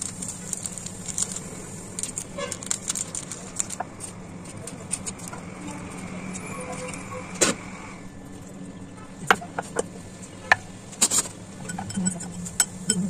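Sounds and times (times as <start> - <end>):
utensils clicking and knocking: 0.0 - 6.4
low background hum: 0.0 - 13.0.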